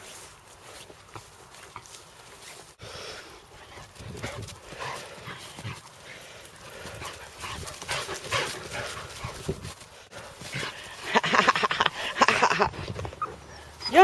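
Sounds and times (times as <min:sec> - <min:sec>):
dogs scuffling: 0:03.7 - 0:11.7.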